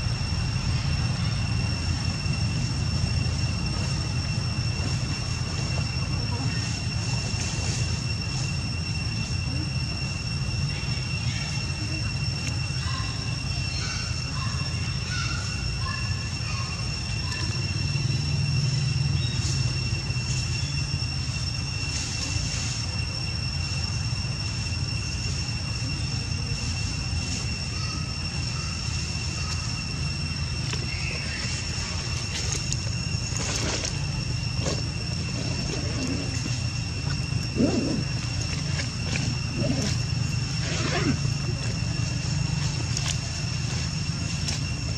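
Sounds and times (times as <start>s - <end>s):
low rumble: 0.0s - 13.4s
high-pitched whine: 0.0s - 44.9s.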